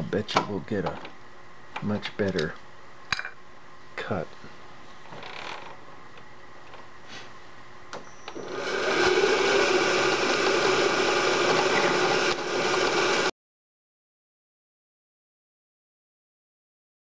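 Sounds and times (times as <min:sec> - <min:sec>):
milling machine whirring and cutting: 0:08.3 - 0:13.3.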